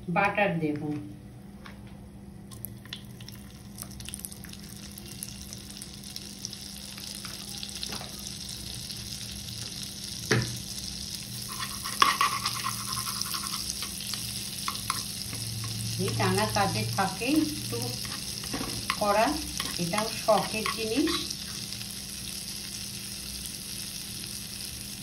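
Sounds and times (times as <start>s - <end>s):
hot oil sizzling: 2.9s - 25.0s.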